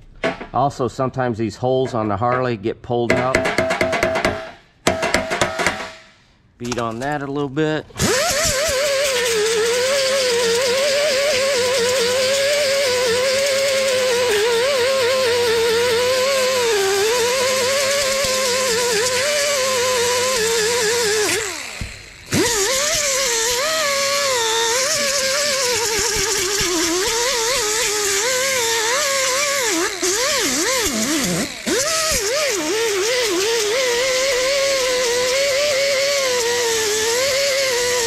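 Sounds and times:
air grinder whining: 8.0s - 38.0s.

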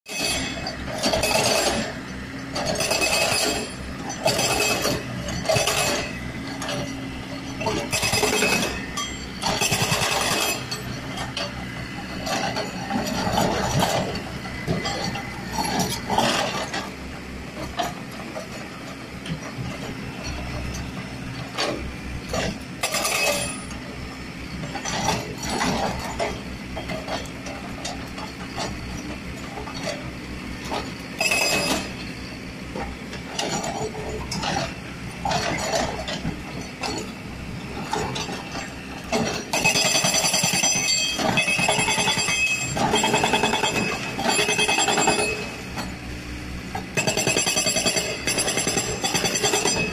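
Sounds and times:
hydraulic rock breaker hammering: 0.1s - 16.9s, 21.5s - 24.0s, 30.7s - 32.2s, 37.8s - 46.0s, 46.7s - 49.9s
diesel engine running: 0.1s - 49.9s.

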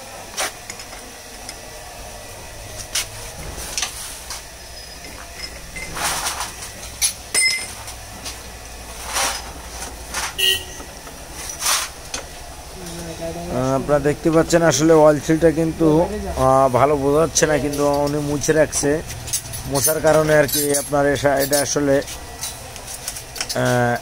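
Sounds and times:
metallic tool clanks: 4.8s - 7.9s, 17.6s - 21.8s.

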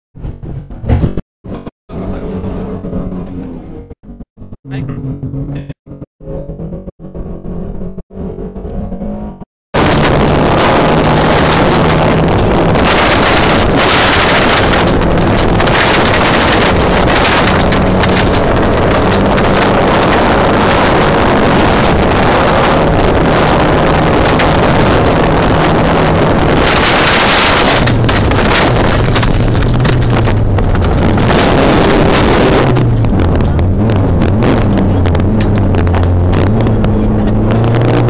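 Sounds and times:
rally car engine revving: 1.5s - 38.0s
gravel noise: 9.8s - 38.0s
wind noise: 9.8s - 38.0s.

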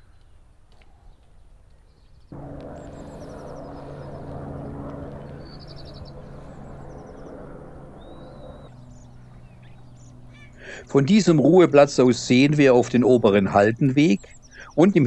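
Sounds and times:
small birds chirping: 0.0s - 15.0s
steady low hum: 2.3s - 15.0s
bird trill: 2.7s - 10.8s.

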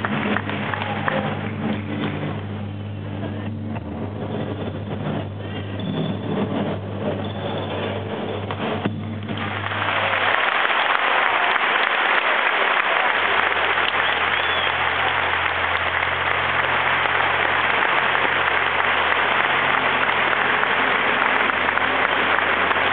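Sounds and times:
audience applauding: 0.0s - 2.5s, 7.7s - 22.9s.

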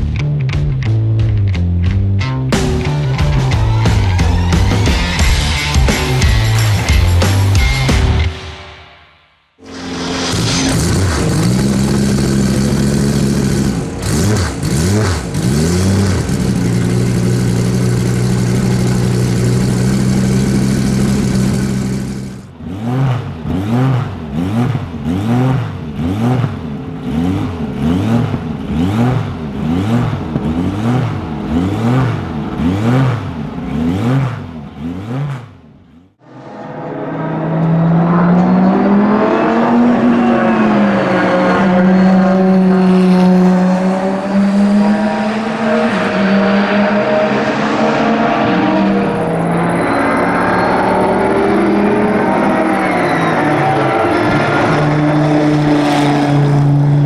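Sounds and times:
engine revving in blips: 9.6s - 57.0s
race car engine idling: 10.9s - 22.5s
race car passing at speed: 36.2s - 57.0s.

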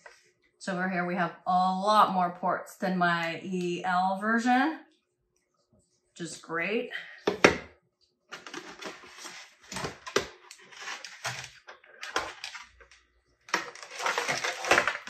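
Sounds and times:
packaging rustling and clattering: 8.3s - 15.0s.

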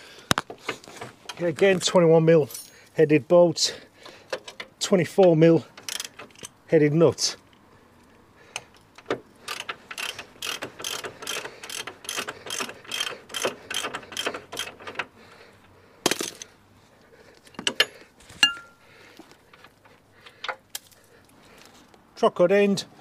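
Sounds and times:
ratchet spanner clicking: 5.6s - 6.6s, 8.5s - 15.2s
metal clinks: 17.5s - 18.9s.

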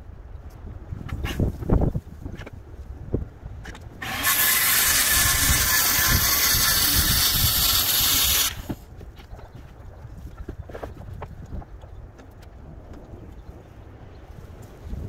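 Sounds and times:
circular saw cutting: 4.0s - 8.8s.

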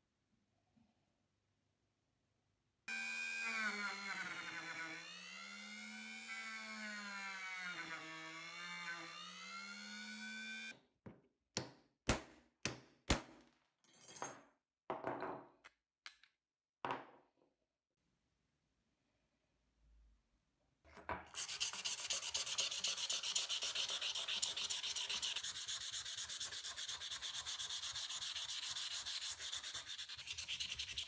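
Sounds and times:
rotary tool grinding metal: 21.4s - 31.0s.

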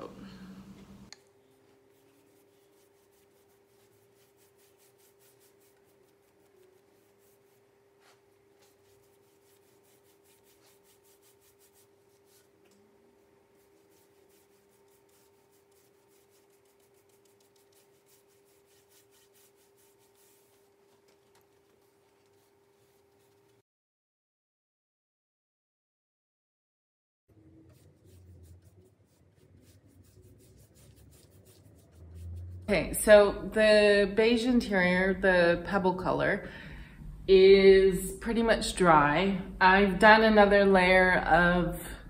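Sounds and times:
steady hum: 0.0s - 23.6s, 27.5s - 41.1s
paintbrush strokes on wood: 1.4s - 12.6s, 13.2s - 23.6s, 27.5s - 33.2s.

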